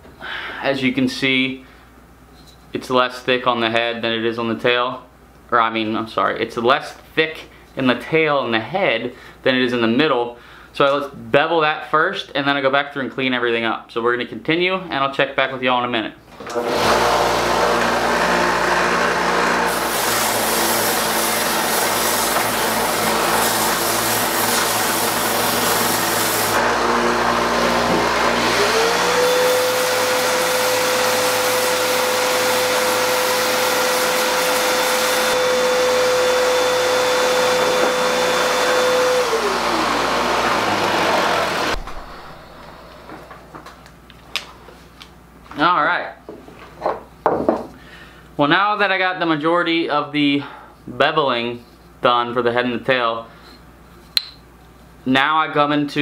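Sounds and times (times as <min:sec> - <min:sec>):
shop vac running: 0:16.3 - 0:43.9
belt sander running: 0:16.4 - 0:43.6
wood sanding against belt: 0:19.5 - 0:26.6.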